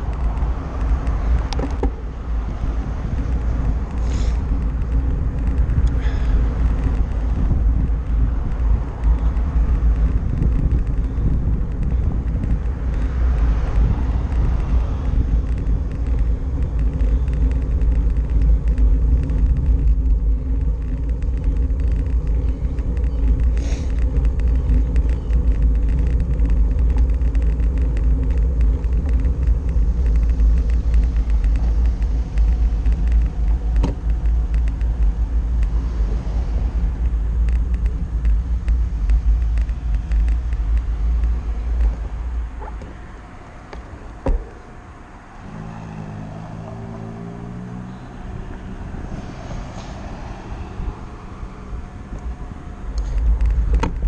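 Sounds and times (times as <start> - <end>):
car traffic passing: 0.0 - 54.0
road rumble: 0.0 - 54.0
wind buffeting: 0.0 - 54.0.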